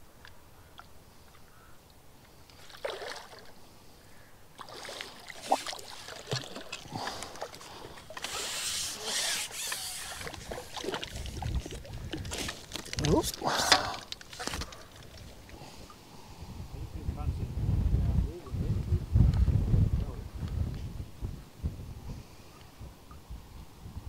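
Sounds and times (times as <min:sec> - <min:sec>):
fish thrashing and splashing water: 0:02.6 - 0:03.5, 0:04.6 - 0:15.6.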